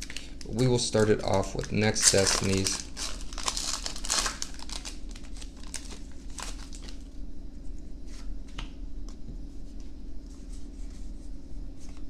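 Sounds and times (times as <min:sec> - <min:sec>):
foil wrapper crinkling and tearing: 0:00.0 - 0:07.1.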